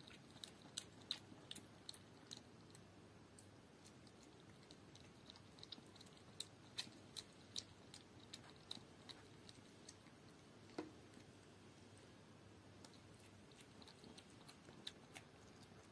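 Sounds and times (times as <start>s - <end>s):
puppy lapping milk: 13.0s - 15.9s.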